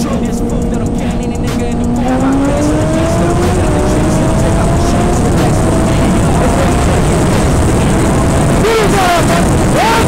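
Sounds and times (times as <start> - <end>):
motorcycle engine accelerating hard: 0.0 - 10.0.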